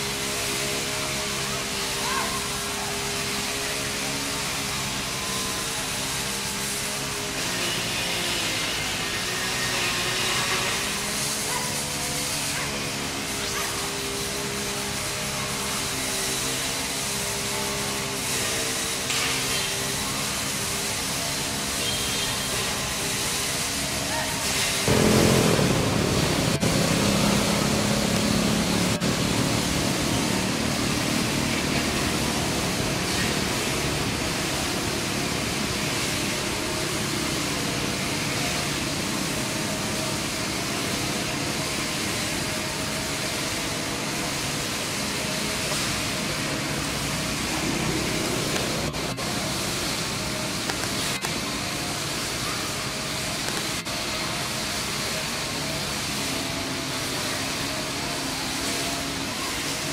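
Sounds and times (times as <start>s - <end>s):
motorbike engines passing: 24.1s - 38.8s.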